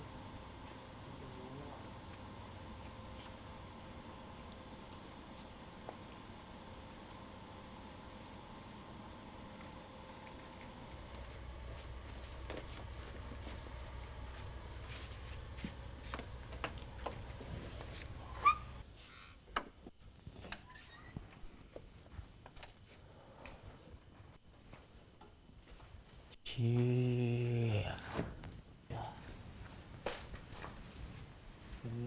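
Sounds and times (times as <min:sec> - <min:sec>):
low hum: 0:00.0 - 0:18.8
crickets and insects chirping: 0:00.0 - 0:32.0
soft footsteps: 0:09.6 - 0:18.8, 0:21.2 - 0:26.9, 0:28.4 - 0:32.0
door click and squeak: 0:20.5 - 0:21.6.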